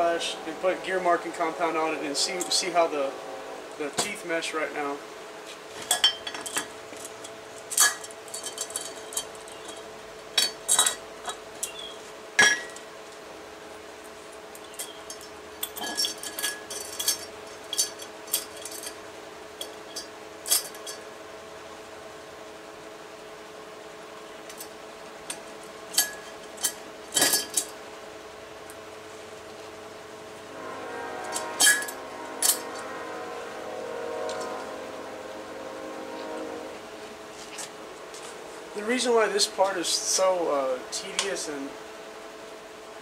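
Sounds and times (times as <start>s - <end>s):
metal parts clinking: 5.8s - 11.8s, 14.6s - 19.0s, 19.6s - 21.0s, 25.3s - 27.8s, 31.3s - 32.8s.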